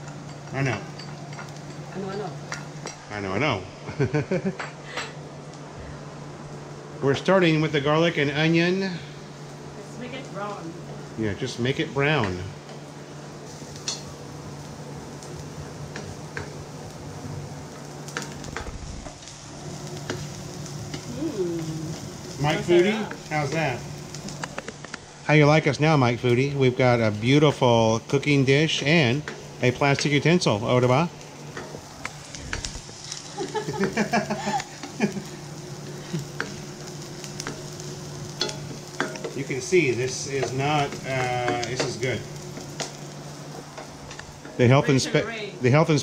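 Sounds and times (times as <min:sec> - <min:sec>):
onion sizzling in frying pan: 0:00.0 - 0:46.0
spatula scraping and tapping pan: 0:37.3 - 0:39.4.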